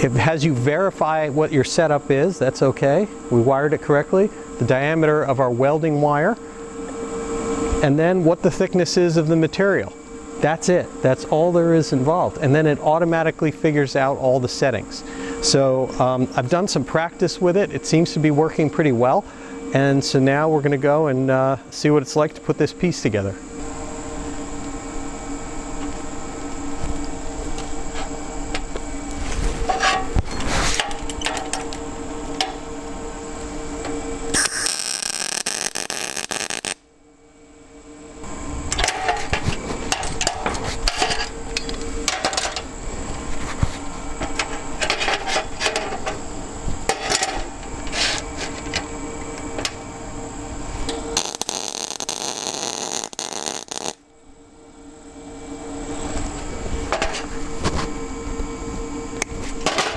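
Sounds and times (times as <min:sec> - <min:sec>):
steady hum: 0:00.0 - 0:59.9
welding arc crackling: 0:34.3 - 0:36.8, 0:51.0 - 0:54.0.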